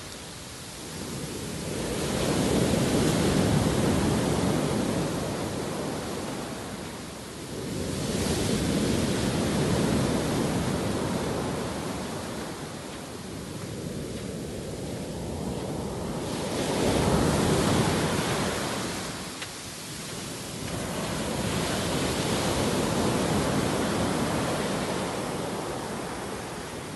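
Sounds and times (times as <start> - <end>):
surf breaking on beach: 0.8 - 26.9.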